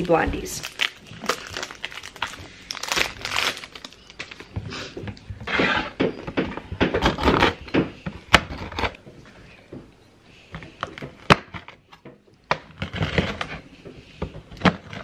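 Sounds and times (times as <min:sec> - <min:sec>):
plastic wrapper crinkling and tearing: 0:00.0 - 0:04.5.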